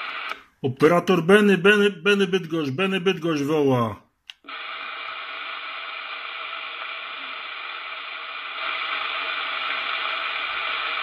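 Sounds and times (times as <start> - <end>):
radio static hiss: 0.0 - 0.5, 4.4 - 11.0.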